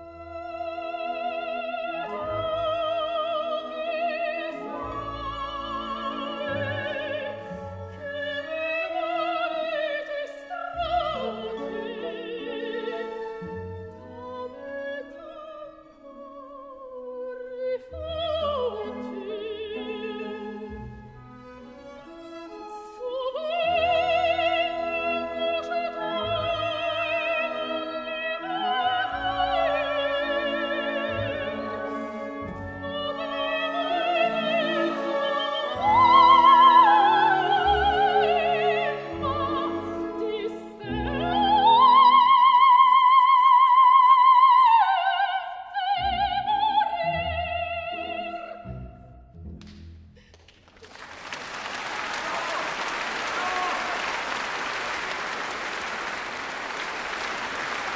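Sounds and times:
orchestra playing: 0:00.0 - 0:15.3, 0:18.0 - 0:42.9
soprano singing: 0:00.0 - 0:49.3.

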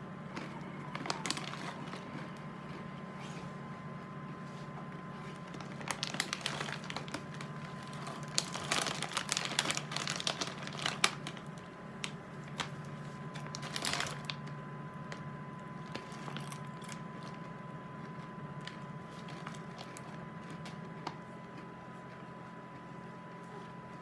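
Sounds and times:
snack bag crinkling: 0:00.4 - 0:02.8, 0:05.2 - 0:21.2.

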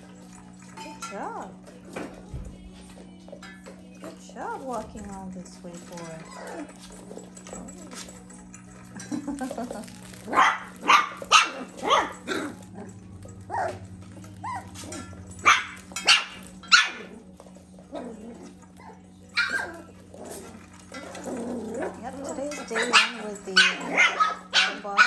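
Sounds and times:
puppies yapping: 0:05.1 - 0:25.0.

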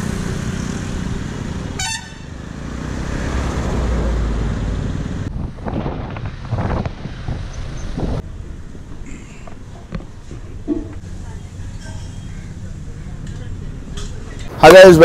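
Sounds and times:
vehicles passing with low rumble: 0:00.0 - 0:15.0.

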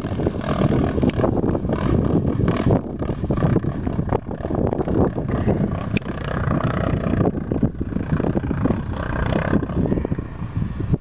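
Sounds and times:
dirt bike engine running: 0:00.0 - 0:11.0
wind buffeting microphone: 0:00.0 - 0:11.0.

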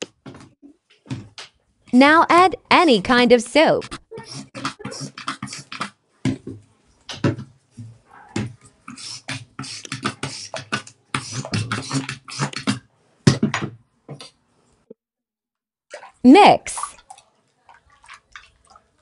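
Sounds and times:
soap pump squirting foam: 0:04.1 - 0:05.9, 0:08.8 - 0:12.8.

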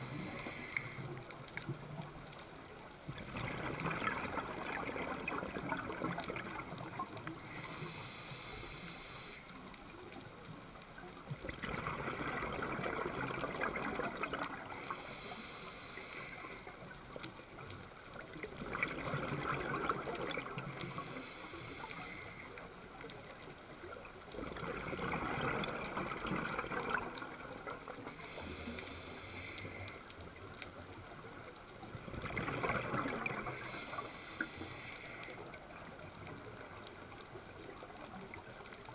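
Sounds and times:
regulator inhalation hiss: 0:00.0 - 0:01.2, 0:07.5 - 0:09.6, 0:14.8 - 0:16.8, 0:20.8 - 0:22.6, 0:28.1 - 0:30.1, 0:33.5 - 0:35.5
exhaled bubbles gurgling underwater: 0:00.0 - 0:38.9.

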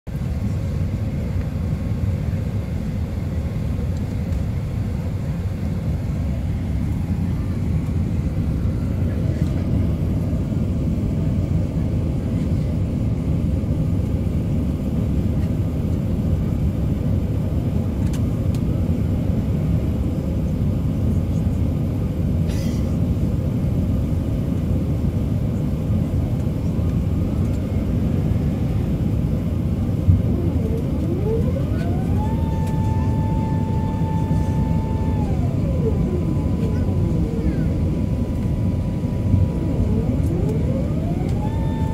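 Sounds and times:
airplane cabin engine rumble: 0:00.1 - 0:41.9
mechanical whine: 0:29.6 - 0:41.9.

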